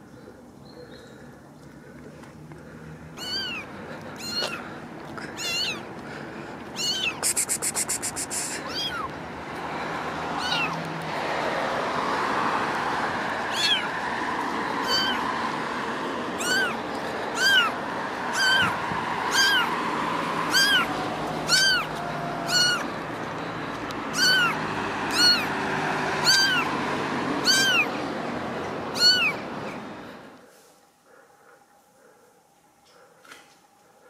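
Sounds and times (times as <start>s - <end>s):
kitten meowing: 3.2s - 3.6s, 4.2s - 4.7s, 5.4s - 5.8s, 6.8s - 9.1s, 10.4s - 10.8s, 13.5s - 13.9s, 14.8s - 15.2s, 16.4s - 19.7s, 20.5s - 22.9s, 24.1s - 25.5s, 26.2s - 26.7s, 27.4s - 28.0s, 28.9s - 29.4s.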